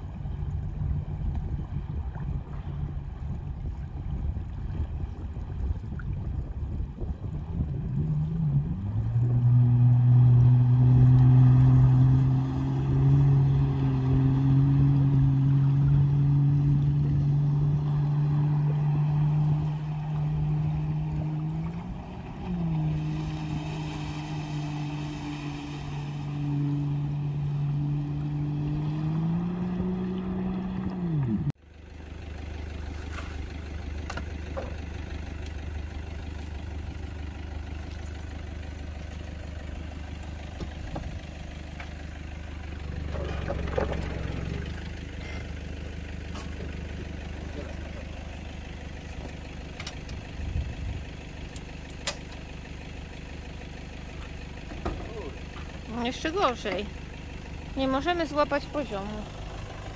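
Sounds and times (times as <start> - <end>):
jet ski engine running: 0.0 - 59.9
vehicle engine idling: 0.0 - 59.9.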